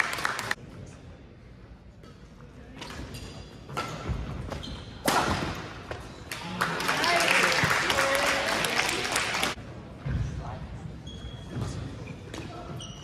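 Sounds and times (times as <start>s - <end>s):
shoe squeaks on gym floor: 2.8s - 5.1s, 10.9s - 13.0s.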